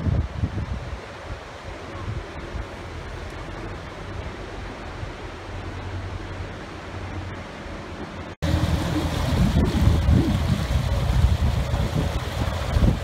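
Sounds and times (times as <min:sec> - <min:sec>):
wind buffeting microphone: 0:00.0 - 0:05.2, 0:08.4 - 0:13.0
boat diesel engine humming: 0:02.4 - 0:13.0.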